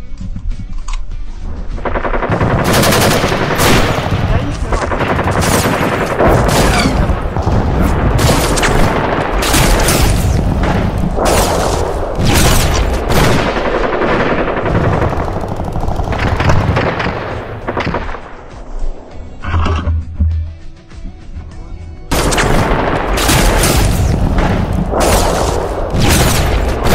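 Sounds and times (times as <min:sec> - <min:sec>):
automatic rifle fire: 0:01.8 - 0:18.3, 0:22.1 - 0:26.9.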